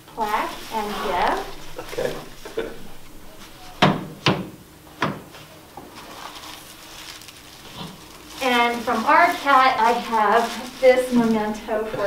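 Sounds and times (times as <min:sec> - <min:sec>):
sharp knocks: 0:00.2 - 0:05.2.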